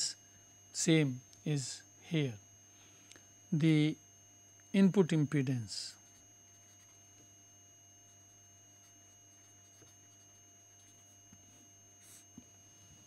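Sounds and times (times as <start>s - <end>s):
faint hum: 0.0s - 13.0s
thin high whine: 0.0s - 13.0s
marker scratching on paper: 8.8s - 12.3s.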